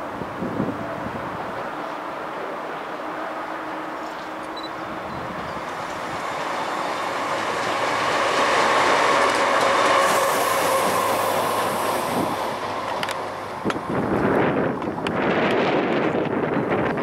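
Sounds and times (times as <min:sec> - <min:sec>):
diesel locomotive passing: 0:00.0 - 0:17.0
wheels on rails: 0:04.0 - 0:17.0.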